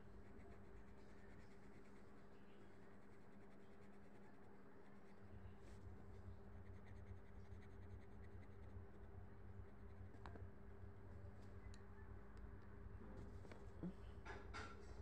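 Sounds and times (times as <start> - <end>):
low steady hum: 0.0 - 15.0
pencil scratching on paper: 0.2 - 5.4, 6.6 - 8.7.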